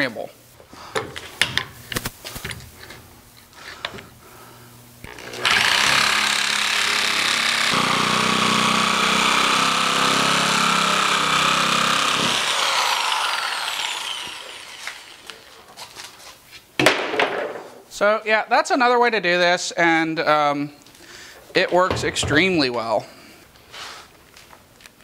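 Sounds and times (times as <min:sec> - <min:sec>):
motor winding down whine: 0:05.0 - 0:15.4
power tool cutting board: 0:05.0 - 0:15.5.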